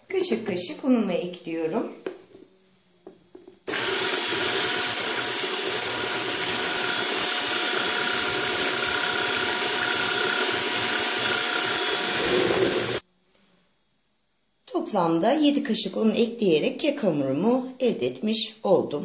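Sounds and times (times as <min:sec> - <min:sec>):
electric hand mixer whining: 0:03.7 - 0:13.0.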